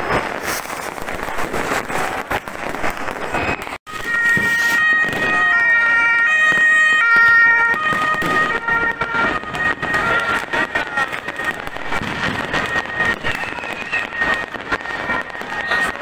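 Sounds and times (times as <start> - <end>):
fireworks crackling and banging: 0.0 - 16.0
two-tone ambulance siren: 3.9 - 16.0.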